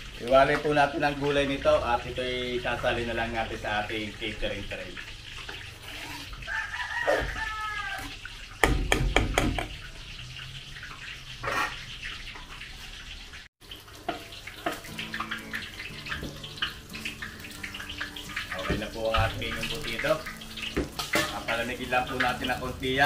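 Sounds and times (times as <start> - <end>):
kitchen clatter: 7.0 - 12.9, 13.6 - 23.0.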